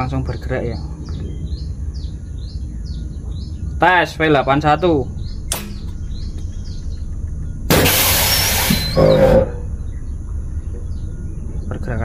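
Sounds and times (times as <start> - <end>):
low rumble: 0.0 - 12.0
compressed air hissing: 7.7 - 9.7.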